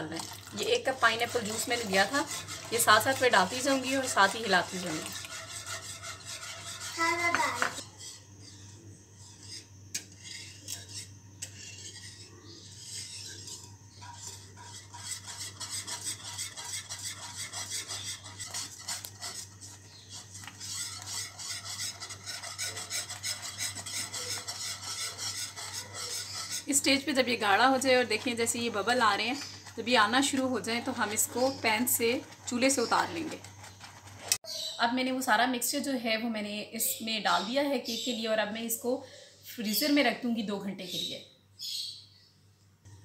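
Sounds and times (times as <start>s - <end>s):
whisk scraping metal pan: 0.1s - 34.5s.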